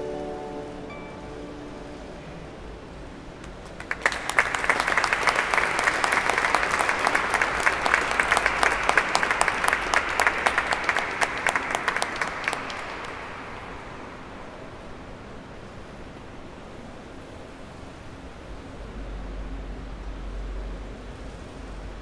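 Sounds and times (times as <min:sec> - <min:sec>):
audience applauding: 0:03.4 - 0:14.3.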